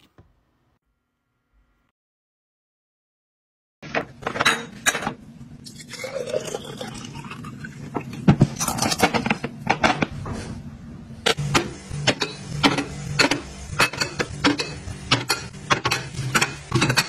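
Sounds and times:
liquid pouring into glass jar: 5.7s - 7.8s.

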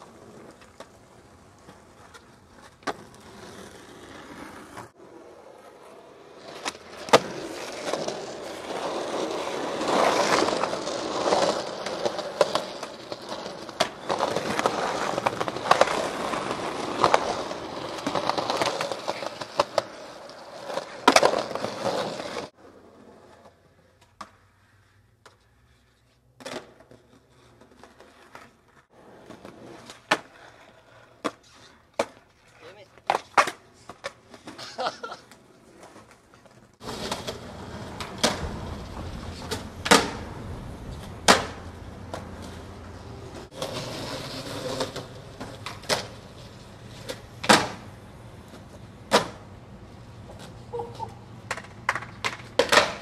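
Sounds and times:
skateboard wheels rolling on concrete: 0.0s - 53.0s
skateboard pops and landing clacks: 1.6s - 3.7s, 6.5s - 8.2s, 9.2s - 20.0s, 20.7s - 22.5s, 26.4s - 28.6s, 29.2s - 30.6s, 31.2s - 34.7s, 35.3s - 42.6s, 43.5s - 49.5s, 50.2s - 53.0s
loud skateboard cracks: 6.4s - 20.0s, 36.8s - 49.5s, 50.3s - 53.0s.

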